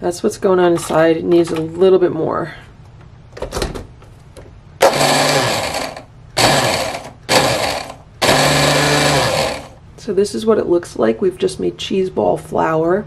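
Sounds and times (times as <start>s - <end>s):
blender motor grinding: 4.8s - 9.8s.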